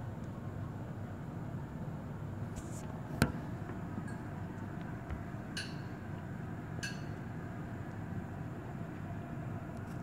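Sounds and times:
ringing clink: 5.6 - 6.0, 6.8 - 7.2.

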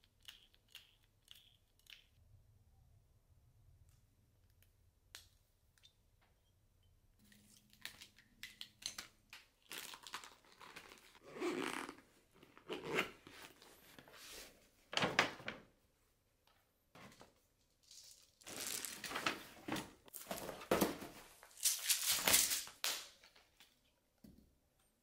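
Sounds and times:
plastic and paper rustling: 17.0 - 22.9.

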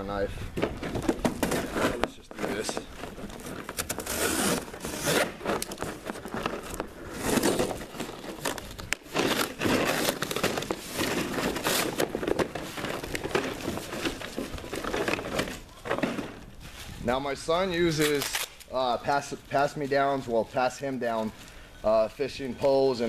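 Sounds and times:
knife cutting cardboard box: 1.2 - 14.1.

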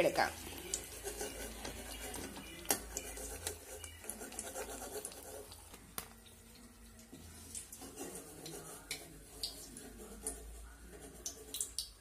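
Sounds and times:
frying oil crackling: 0.0 - 12.0.

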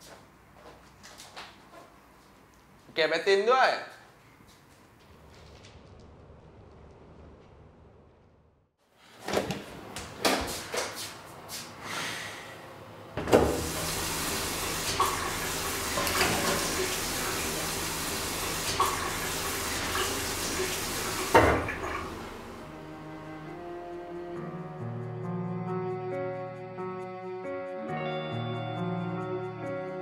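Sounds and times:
water running into basin: 13.4 - 22.6.

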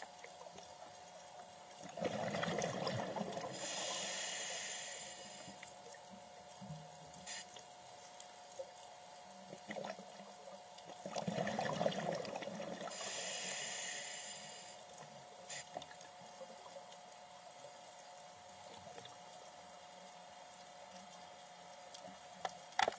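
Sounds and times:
faint steady hum: 0.0 - 22.9
exhaled bubbles crackling: 1.8 - 3.8, 9.4 - 13.1
regulator inhale hiss: 3.4 - 5.7, 7.2 - 7.6, 12.8 - 15.9.

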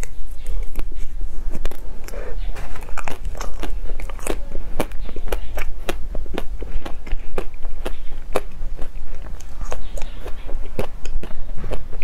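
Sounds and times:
person chewing food: 0.0 - 12.0
steady low hum: 0.0 - 12.0.

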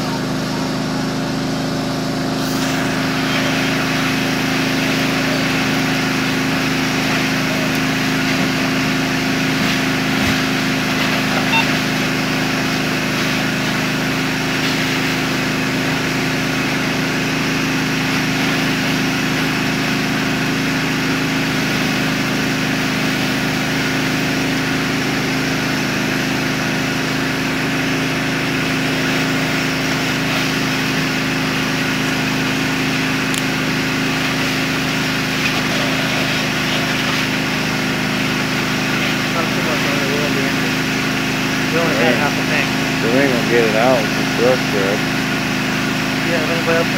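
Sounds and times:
fire engine motor pumping: 0.0 - 46.9
hiss of water spray: 2.4 - 11.3, 12.7 - 19.6.

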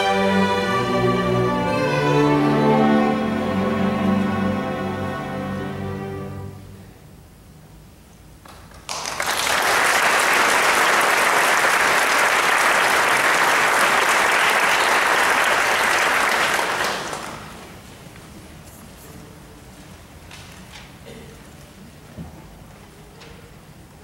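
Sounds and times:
audience applauding: 8.6 - 17.8.

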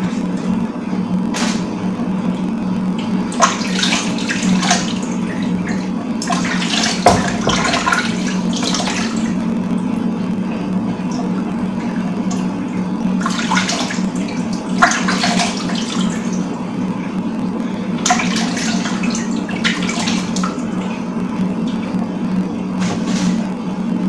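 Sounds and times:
water running from tap: 3.0 - 9.4, 11.0 - 16.5
water splashing and sloshing: 3.0 - 16.6, 18.0 - 23.6.

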